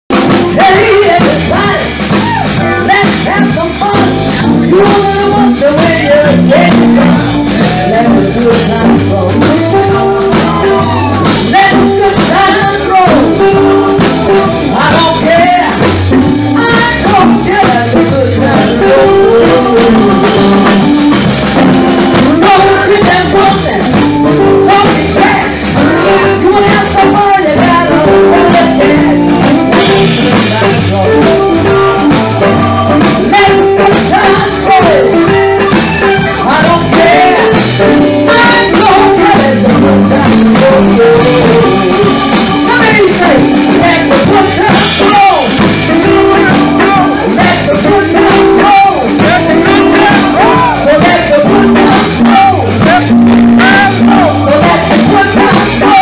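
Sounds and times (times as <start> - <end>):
drum kit: 0.1 - 56.0
electric guitar: 0.1 - 56.0
woman singing into a microphone: 0.2 - 20.9, 22.2 - 32.1, 33.0 - 35.4, 36.3 - 56.0.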